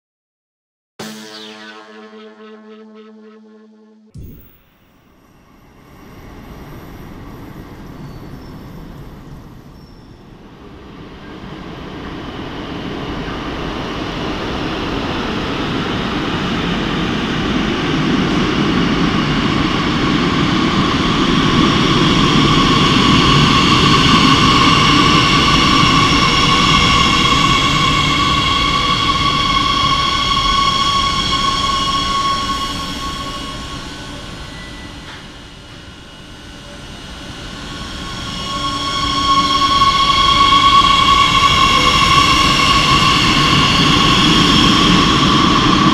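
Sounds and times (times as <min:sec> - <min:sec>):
train high whine: 0:01.0 - 0:45.9.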